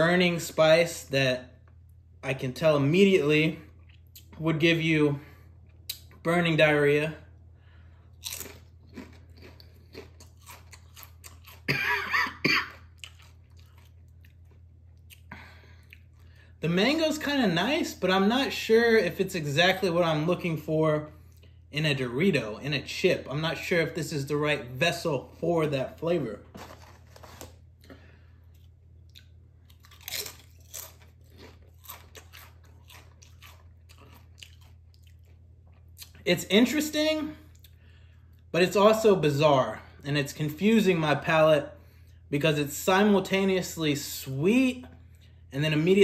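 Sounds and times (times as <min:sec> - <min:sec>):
person chewing crunchy chips: 0:07.9 - 0:16.5, 0:26.4 - 0:36.2
hand rustling in chip bag: 0:26.4 - 0:27.6.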